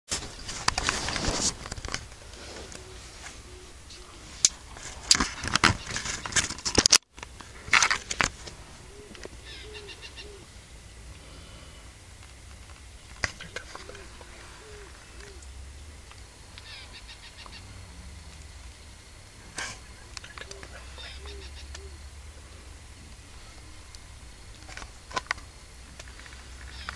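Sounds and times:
low bird calls: 2.3 - 4.5, 8.6 - 11.9, 13.0 - 25.2, 26.1 - 26.9
high bird chirps: 8.9 - 10.4, 19.9 - 22.0.

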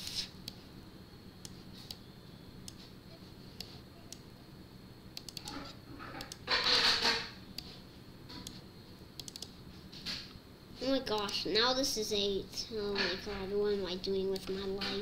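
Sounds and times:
faint steady hum: 0.0 - 15.0
computer mouse clicking: 1.4 - 2.0, 5.2 - 6.5, 7.6 - 7.8, 8.4 - 8.6, 9.2 - 9.6, 11.1 - 11.4.

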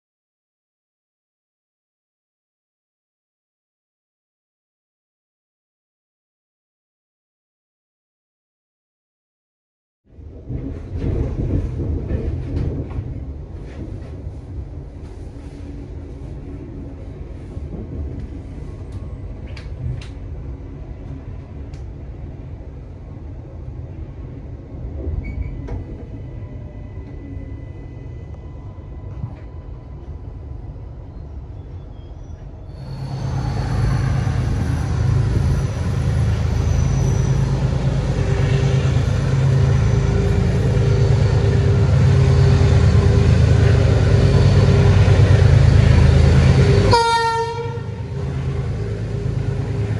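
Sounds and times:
train rumbling on rails: 10.1 - 49.9.

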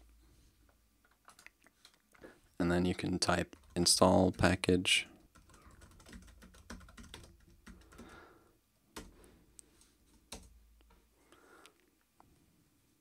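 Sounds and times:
typing on computer keyboard: 1.1 - 2.0, 3.4 - 8.2, 9.0 - 9.2, 10.1 - 10.6.

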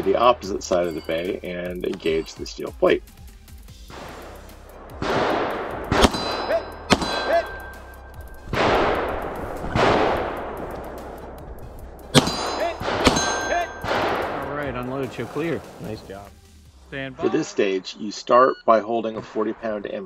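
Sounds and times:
pistol shots: 3.9 - 11.3, 12.1 - 14.6
ringing ding of steel target: 12.2 - 13.8.

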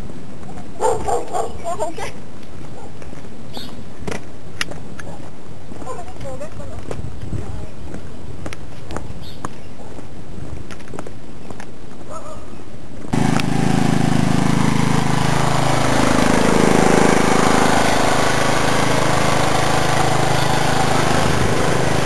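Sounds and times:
engine running steadily: 13.1 - 22.0.

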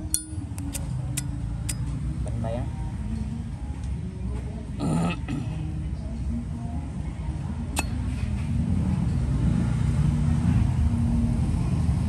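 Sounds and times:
low rumble of road traffic: 0.0 - 12.0
lighter lid snapping: 0.1 - 1.8.

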